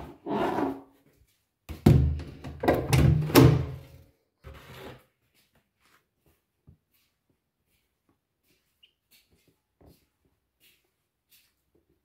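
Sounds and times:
footstep scuff: 0:04.5 - 0:12.0.

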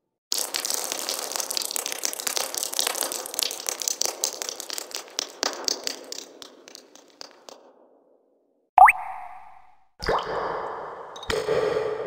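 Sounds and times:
water dripping fast: 0:00.3 - 0:07.6.

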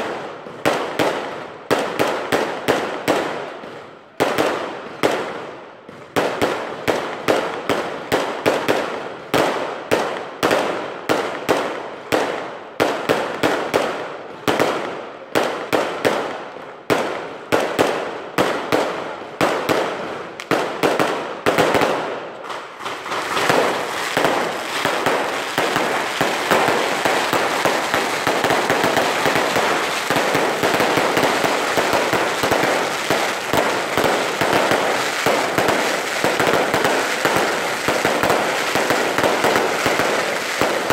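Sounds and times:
fireworks bangs and crackling: 0:00.0 - 0:40.9.

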